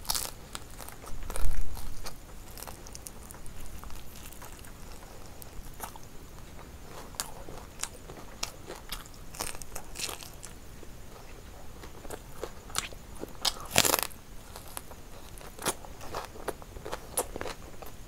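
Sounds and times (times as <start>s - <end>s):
crunchy chewing of fried chicken: 0.0s - 18.0s.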